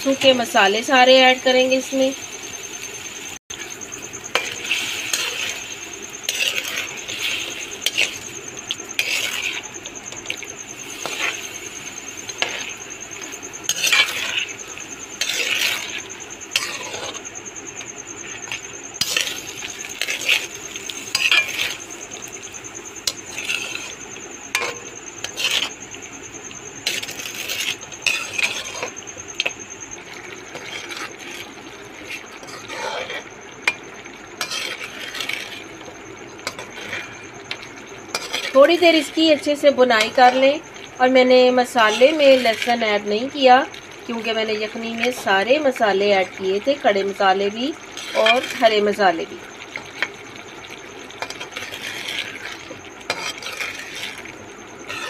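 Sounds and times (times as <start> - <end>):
oil sizzling: 0.0 - 55.0
metal spoon scraping pot: 4.2 - 11.5, 12.1 - 25.8, 26.8 - 29.6, 30.4 - 40.6, 41.5 - 43.1, 47.8 - 49.0, 51.2 - 55.0.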